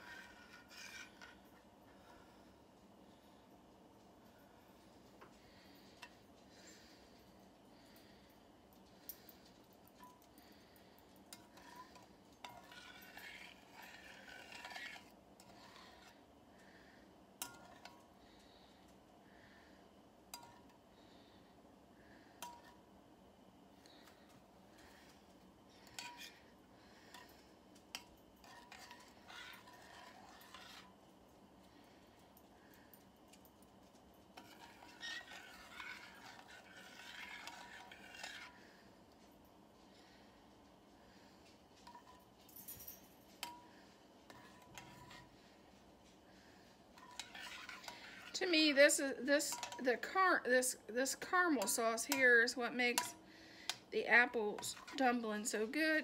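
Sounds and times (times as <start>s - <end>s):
spoon scraping pan: 0.0s - 1.6s, 11.3s - 16.2s, 25.8s - 26.4s, 27.1s - 31.0s, 34.4s - 38.8s, 44.3s - 45.6s, 46.4s - 56.0s.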